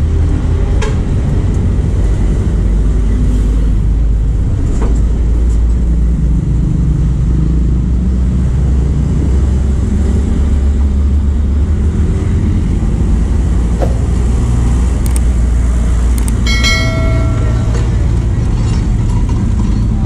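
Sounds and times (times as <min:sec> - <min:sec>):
road traffic rumble: 0:00.0 - 0:20.0
short ringing tone: 0:16.4 - 0:18.5.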